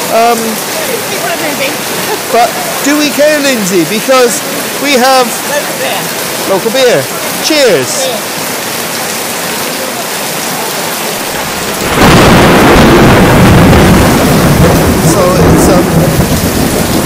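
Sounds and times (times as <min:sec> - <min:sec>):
rain and hail on a roof: 0:00.0 - 0:17.0
thunder rumbling: 0:11.2 - 0:17.0.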